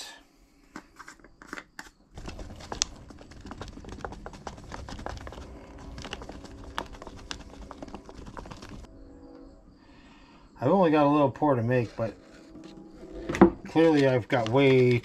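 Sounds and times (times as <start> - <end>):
stir stick scraping plastic cup: 2.2 - 8.9, 11.6 - 15.0.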